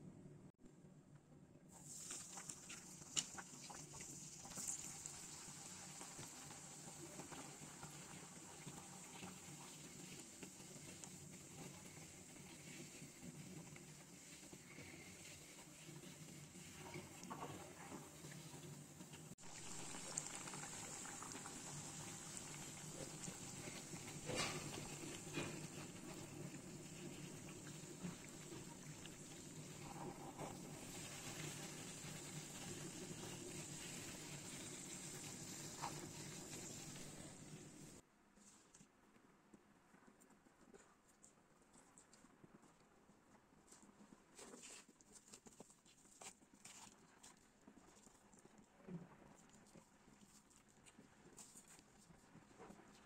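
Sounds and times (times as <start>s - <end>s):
dough deep-frying in hot oil: 1.7s - 38.0s
oil crackling and popping: 1.8s - 15.0s, 15.6s - 38.0s.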